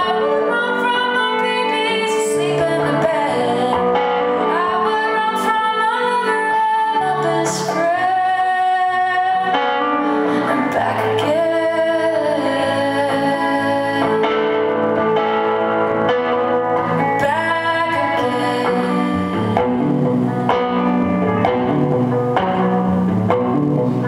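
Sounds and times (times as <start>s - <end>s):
woman singing: 0.0s - 15.0s, 17.0s - 19.8s
strummed electric guitar: 0.0s - 24.0s.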